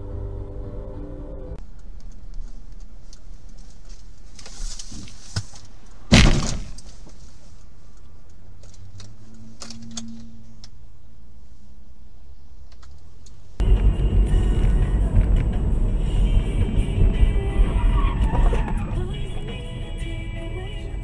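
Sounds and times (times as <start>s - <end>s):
loud crash bang: 6.1s - 6.8s
car running noise: 12.6s - 21.0s.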